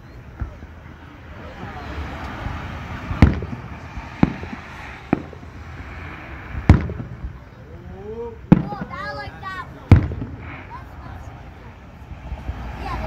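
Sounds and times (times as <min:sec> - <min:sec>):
firework shells bursting: 0:02.2 - 0:07.4.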